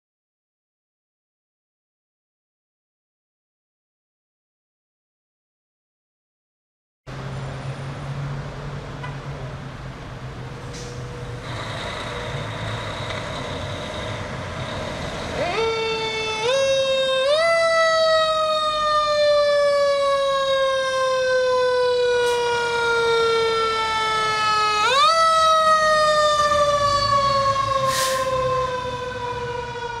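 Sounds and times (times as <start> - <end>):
truck engine rumble: 7.1 - 30.0
fire engine siren winding: 10.8 - 30.0.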